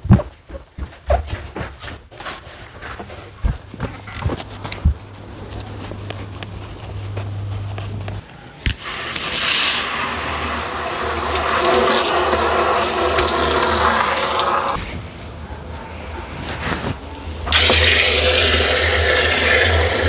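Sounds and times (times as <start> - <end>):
hose spray hissing into plastic tank: 8.8 - 14.8.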